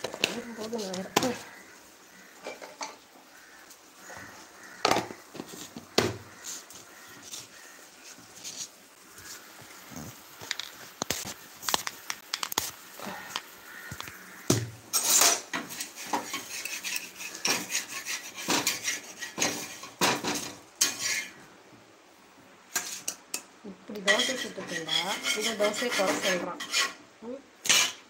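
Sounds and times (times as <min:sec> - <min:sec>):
metal utensil scraping a pan: 0:02.2 - 0:03.6, 0:14.9 - 0:21.4, 0:22.7 - 0:27.0, 0:27.6 - 0:28.0.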